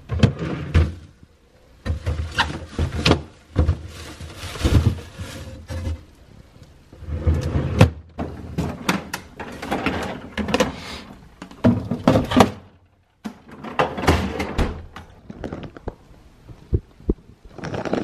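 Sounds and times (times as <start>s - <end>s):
drawers sliding and knocking: 0.0s - 1.2s, 7.0s - 10.8s, 13.3s - 14.9s
plastic bags rustling: 1.9s - 6.1s.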